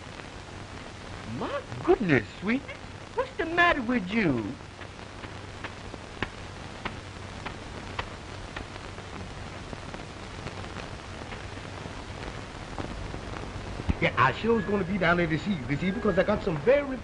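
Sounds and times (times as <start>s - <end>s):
faint crackles and clicks: 0.0s - 17.0s
film soundtrack hiss: 0.0s - 17.0s.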